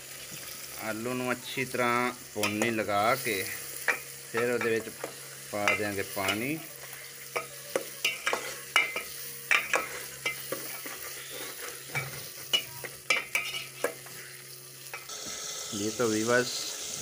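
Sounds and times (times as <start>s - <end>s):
potatoes sizzling: 0.0s - 17.0s
ladle clinking and scraping pot: 7.3s - 14.1s.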